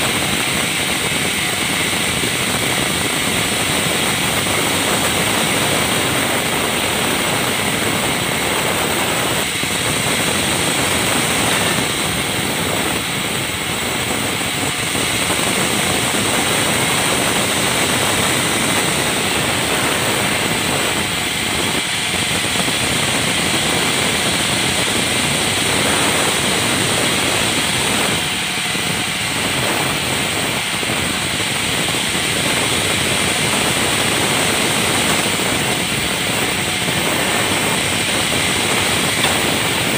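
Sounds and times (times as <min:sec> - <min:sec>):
band saw cutting wood: 0:00.0 - 0:39.9.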